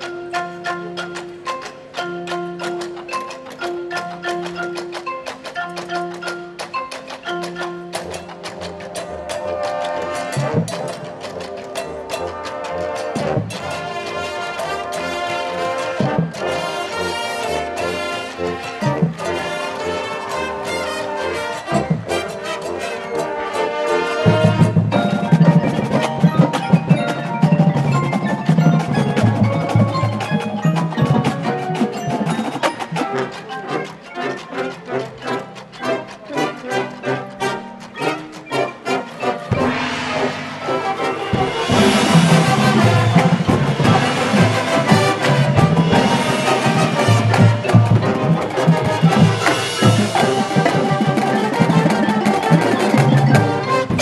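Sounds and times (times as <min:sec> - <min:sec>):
mallet keyboards: 0:00.0 - 0:54.0
rapid drum strokes: 0:01.0 - 0:34.1, 0:39.0 - 0:54.0
brass chords: 0:07.9 - 0:54.0
sustained brass chords: 0:33.1 - 0:54.0
low drum notes: 0:39.5 - 0:54.0.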